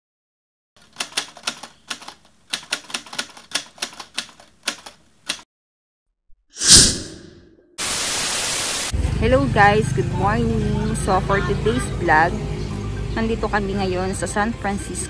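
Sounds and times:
typewriter key clacks: 0:00.8 - 0:05.4.

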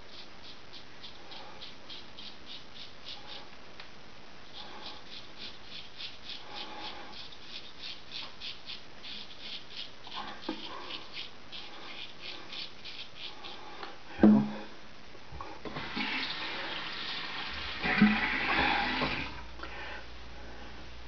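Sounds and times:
straight razor scraping stubble: 0:04.5 - 0:13.6.

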